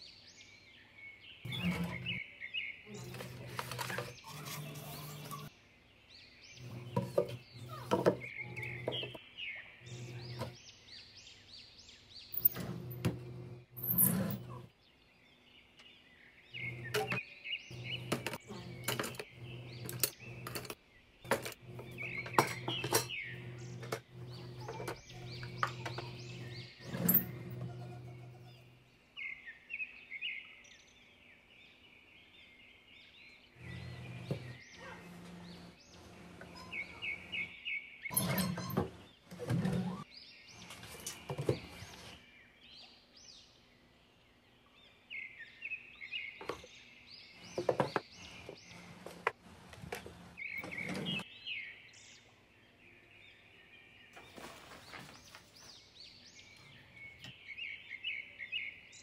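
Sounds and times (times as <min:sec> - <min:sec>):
bird chirping: 0:00.0 - 0:49.3, 0:49.9 - 0:59.0
wooden drawers sliding and rattling: 0:49.8 - 0:51.2.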